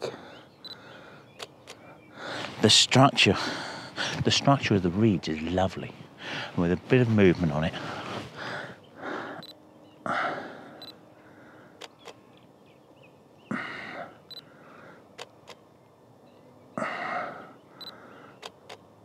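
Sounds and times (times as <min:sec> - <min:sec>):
camera shutter clicks: 0:01.4 - 0:01.8, 0:11.8 - 0:12.2, 0:15.2 - 0:15.6, 0:18.4 - 0:18.8.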